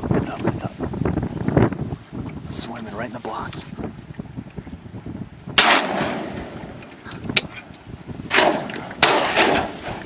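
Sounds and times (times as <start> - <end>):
shotgun blasts: 5.6 - 6.6, 8.3 - 10.0.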